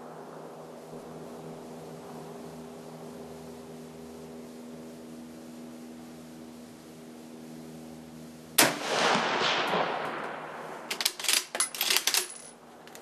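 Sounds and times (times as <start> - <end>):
rifle shot echoing: 8.6 - 10.9.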